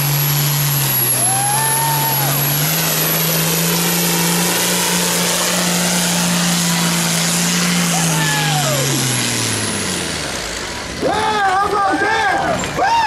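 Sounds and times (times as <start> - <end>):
tractor diesel engine at full load: 0.0 - 13.0.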